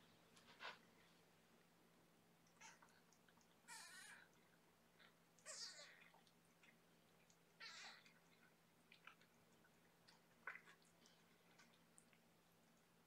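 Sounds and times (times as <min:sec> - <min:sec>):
cat mewing: 0:05.4 - 0:06.1.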